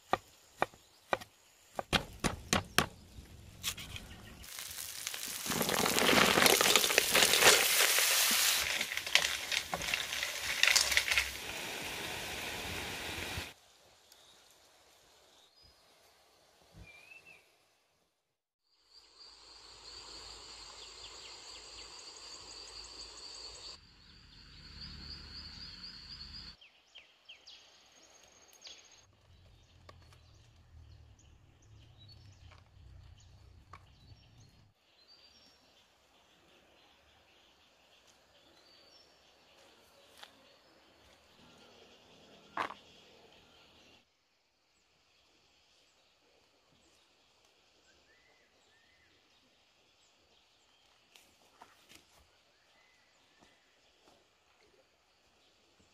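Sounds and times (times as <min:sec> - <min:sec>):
quiet outdoor sounds: 0:00.0 - 0:55.9
food sizzling in a wok: 0:04.3 - 0:13.6.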